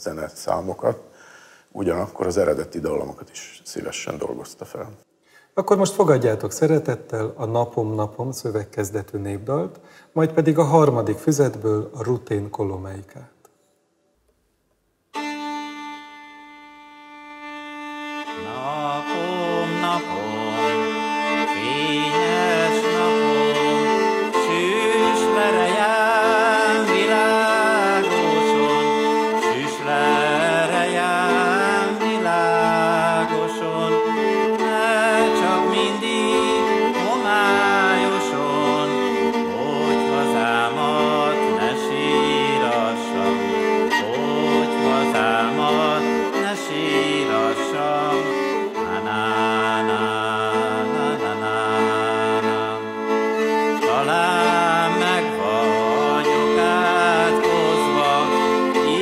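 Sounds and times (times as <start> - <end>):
folk viola bowing chords: 15.1 - 59.0
man singing folk song: 18.4 - 53.1, 53.8 - 59.0.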